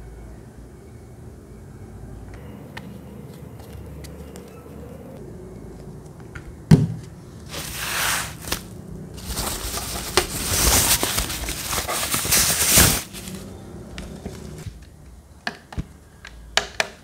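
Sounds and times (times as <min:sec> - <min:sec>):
plastic packaging crinkling: 0:07.4 - 0:14.8.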